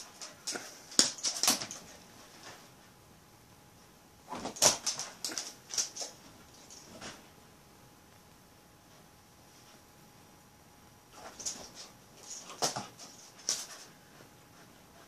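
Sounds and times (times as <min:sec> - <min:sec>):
dog clicking and scuffling: 0:00.0 - 0:02.6, 0:04.3 - 0:07.2, 0:11.2 - 0:15.0.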